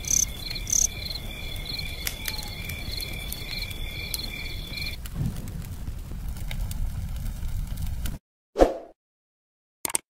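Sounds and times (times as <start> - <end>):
insects chirping: 0.0 - 5.0
sharp crackles: 0.0 - 8.2.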